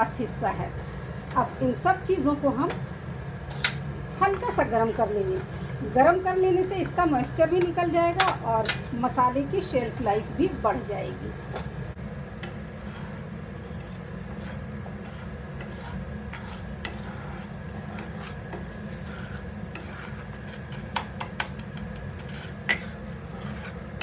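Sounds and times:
steady low hum: 0.0s - 24.0s
wooden spatula scraping dry pan: 6.8s - 9.9s, 12.4s - 24.0s.

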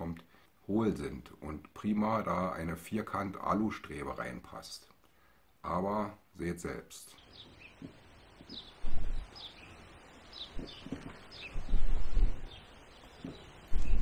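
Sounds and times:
bird chirping: 7.0s - 14.0s
wind buffeting microphone: 8.5s - 9.5s, 10.3s - 14.0s.

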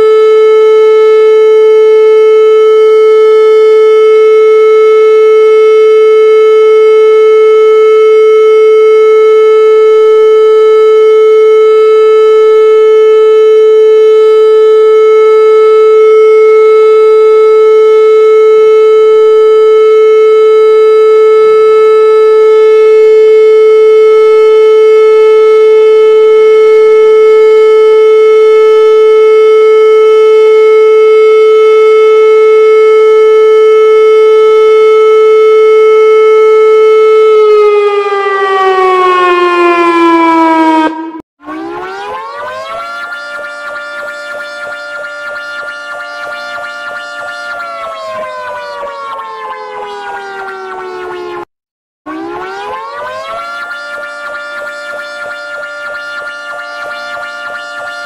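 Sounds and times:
warning siren: 0.0s - 58.0s.

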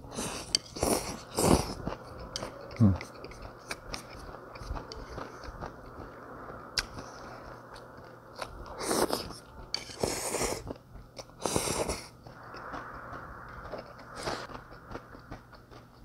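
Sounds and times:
person slurping noodles: 0.1s - 5.5s, 8.4s - 10.8s, 11.4s - 12.2s
chewing: 0.1s - 16.0s.

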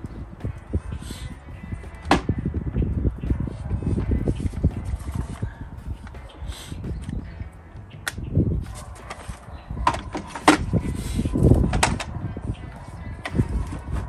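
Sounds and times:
dull low thuds: 0.0s - 6.2s.

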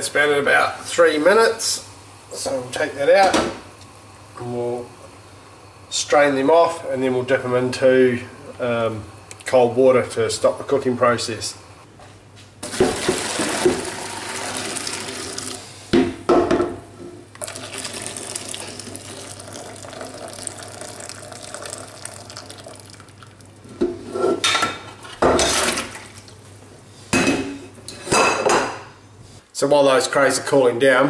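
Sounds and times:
water pouring into sink: 12.6s - 15.6s, 17.3s - 23.7s.

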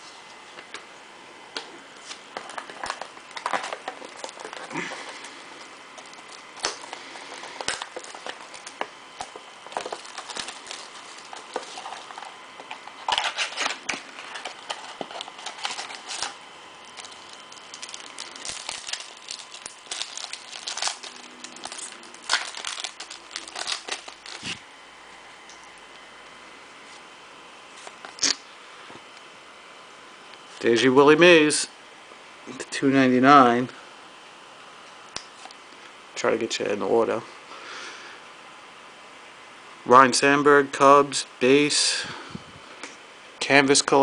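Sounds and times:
foil wrapper tearing and crinkling: 2.0s - 5.4s, 6.0s - 24.6s.

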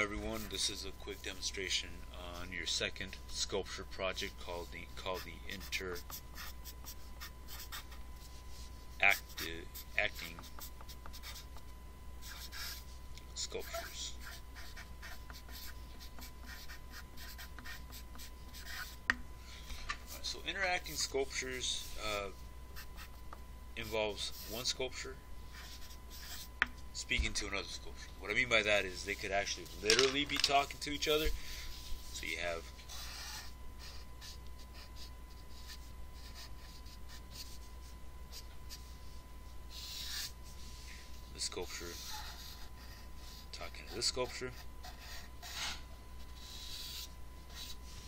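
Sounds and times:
marker writing on paper: 4.2s - 11.6s, 12.2s - 12.9s, 13.6s - 19.0s, 25.6s - 26.5s, 32.9s - 37.6s, 39.7s - 40.3s, 41.8s - 48.0s.

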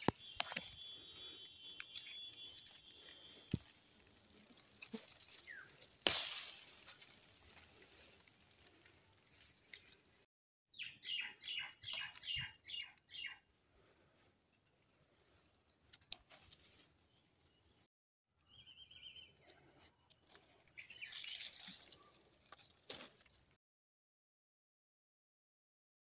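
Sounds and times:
bird calling: 10.7s - 13.4s.

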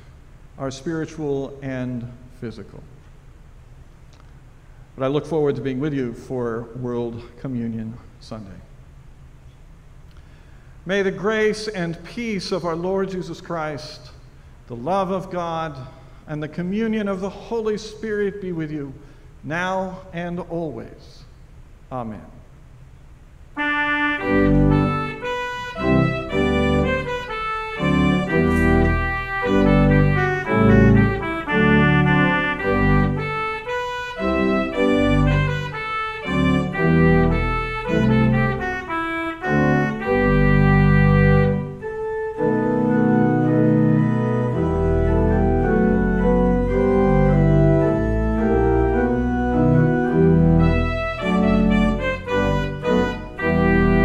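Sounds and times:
organ playing: 23.6s - 54.0s.

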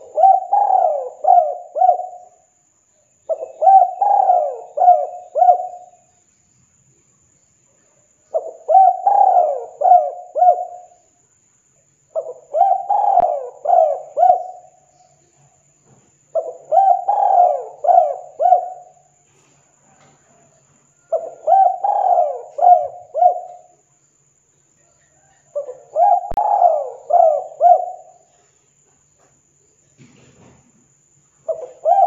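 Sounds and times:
dove cooing: 0.0s - 2.4s, 3.3s - 6.0s, 8.3s - 11.0s, 12.1s - 14.9s, 16.3s - 19.2s, 20.3s - 23.8s, 25.1s - 28.4s, 31.5s - 32.0s.

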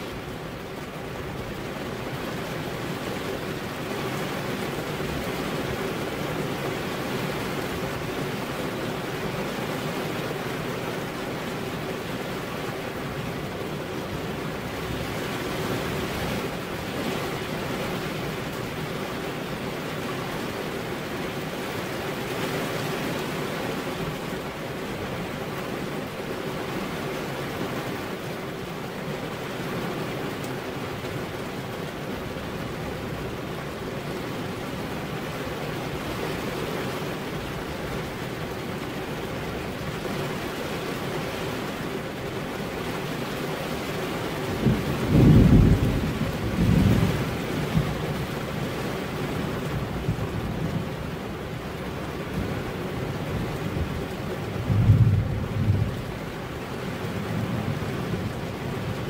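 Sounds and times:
rain on a window: 0.0s - 59.0s.

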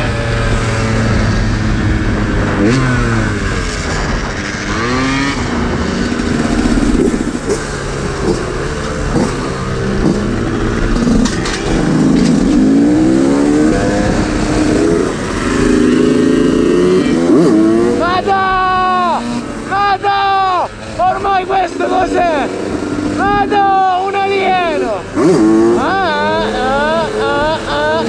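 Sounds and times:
moped engine revving: 0.0s - 28.0s
steady rushing noise: 0.0s - 28.0s.

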